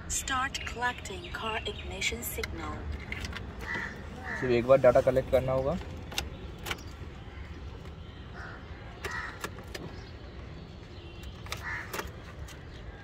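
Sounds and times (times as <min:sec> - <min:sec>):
crows cawing: 0:03.6 - 0:04.7, 0:08.3 - 0:09.5, 0:11.6 - 0:12.0.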